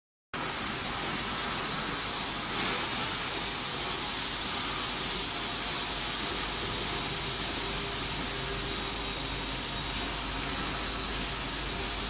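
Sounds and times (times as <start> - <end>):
glass washing machine hissing: 0.4 - 12.0.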